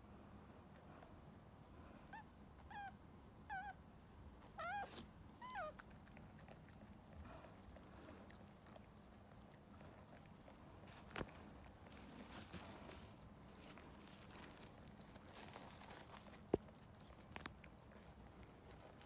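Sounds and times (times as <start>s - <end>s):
puppy crying in high squeaks: 2.1s - 3.8s, 4.6s - 5.8s
faint rustling: 6.7s - 19.0s.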